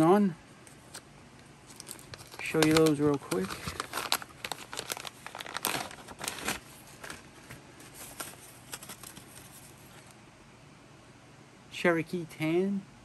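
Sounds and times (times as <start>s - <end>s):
packaging crinkling and rustling: 1.6s - 10.1s.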